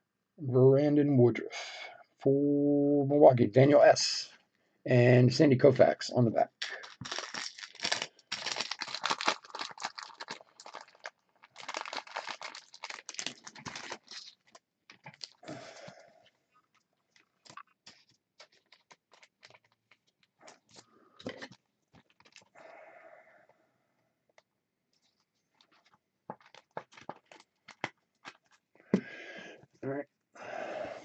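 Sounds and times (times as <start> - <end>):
plastic packaging crinkling: 6.6 - 15.8, 16.6 - 22.6, 25.0 - 28.7.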